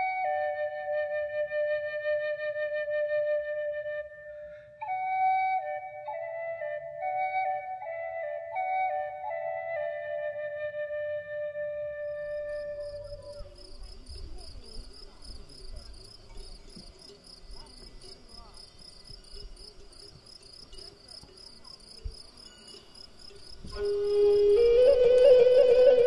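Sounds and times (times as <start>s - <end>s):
held music tone: 12.1s - 26.0s
insect chirping: 12.1s - 26.0s.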